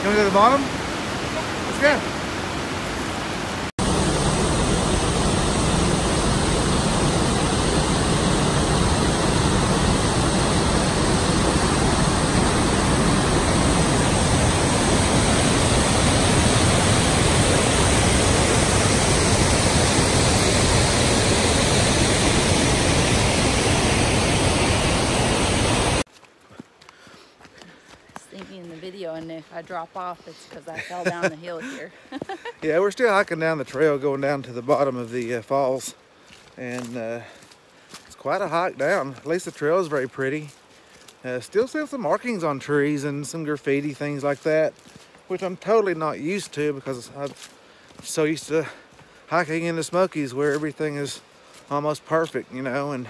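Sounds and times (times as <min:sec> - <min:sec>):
waterfall rushing: 0:00.0 - 0:26.1.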